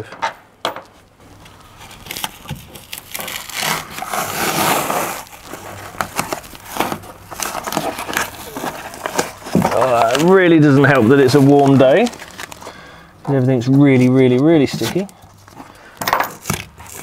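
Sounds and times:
foam insulation tearing off metal: 1.4 - 12.8.

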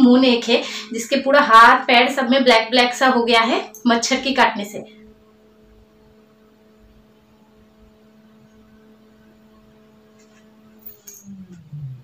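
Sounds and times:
faint electrical hum: 0.0 - 12.0.

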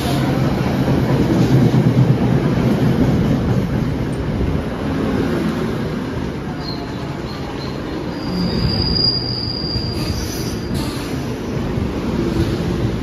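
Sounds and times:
train wheels rumbling on rail: 0.0 - 13.0
high brake squeal: 8.0 - 11.3.

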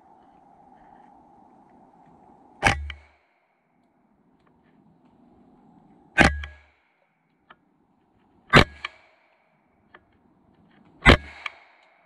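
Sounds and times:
sharp bangs with ring: 6.2 - 6.7.

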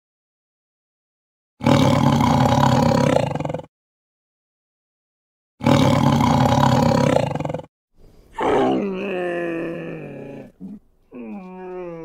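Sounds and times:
tiger roaring: 1.6 - 3.7, 5.6 - 7.7, 8.4 - 12.0
animal moaning: 8.4 - 12.0.

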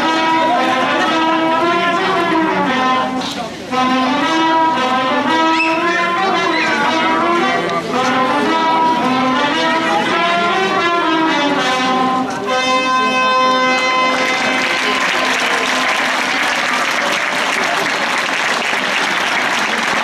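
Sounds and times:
brass band playing: 0.0 - 20.0
crowd clapping: 13.8 - 20.0.

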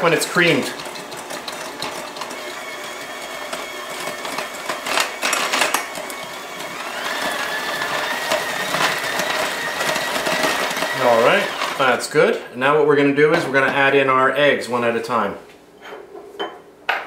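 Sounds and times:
electric hand mixer whining: 0.0 - 12.1.

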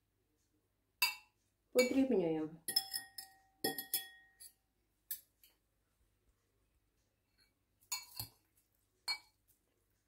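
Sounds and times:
metal forks clinking on glass pot: 1.0 - 2.1, 2.7 - 4.6, 7.9 - 8.4.

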